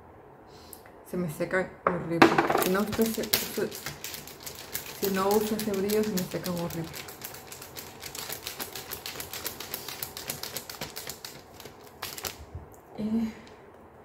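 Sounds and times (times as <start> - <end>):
rapid dry clicking: 2.6 - 12.4.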